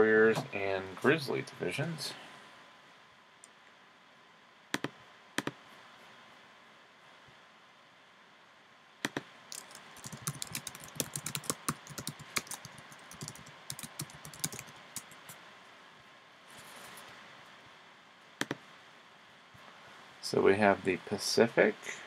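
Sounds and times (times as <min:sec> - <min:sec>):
typing on computer keyboard: 0:09.5 - 0:15.4.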